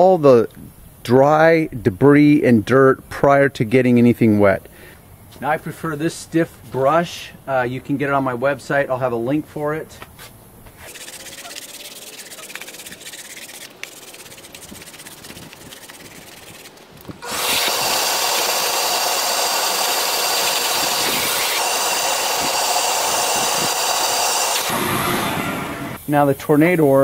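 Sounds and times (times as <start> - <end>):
brush scrubbing carpet mat: 10.8 - 16.8
shop vacuum whining: 17.2 - 26.0.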